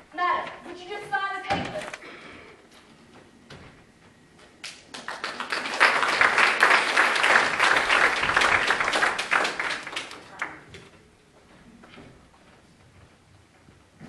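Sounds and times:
audience applause: 4.8 - 10.7.

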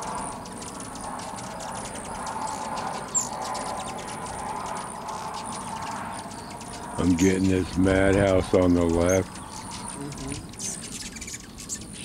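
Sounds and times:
hummingbirds chipping and twittering: 0.0 - 12.0
whir of hovering wings: 0.0 - 12.0.

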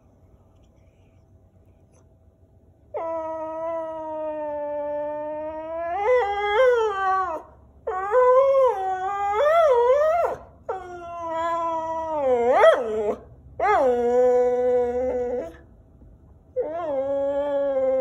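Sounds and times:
dog howling: 2.9 - 15.6, 16.6 - 18.0.

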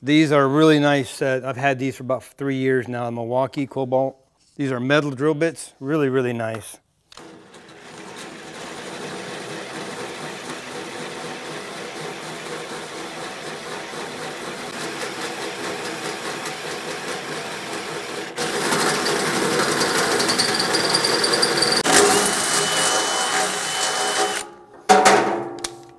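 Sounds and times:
cordless drill boring through metal: 7.2 - 24.5.

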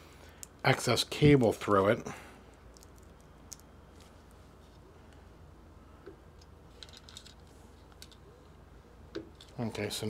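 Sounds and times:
cable clicks and rustles: 2.5 - 5.2, 6.0 - 8.3, 9.1 - 9.9.

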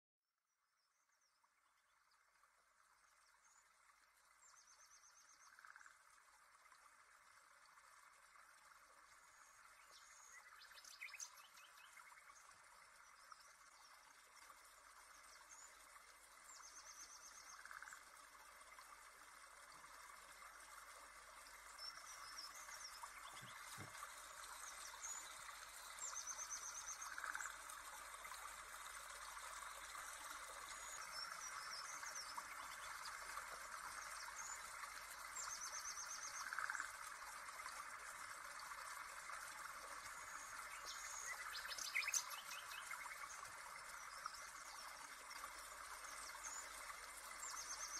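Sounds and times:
bird chirps and trills: 21.8 - 27.6, 40.3 - 43.2.

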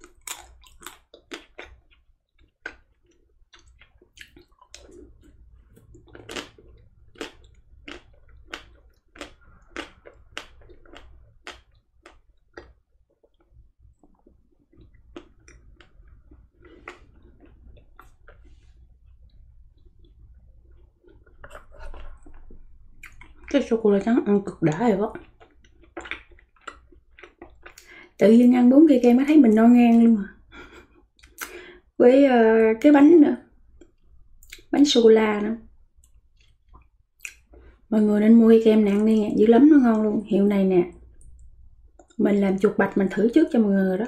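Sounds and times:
wet mouth sounds: 0.0 - 23.6, 30.5 - 31.7, 33.8 - 34.7, 36.0 - 37.8.

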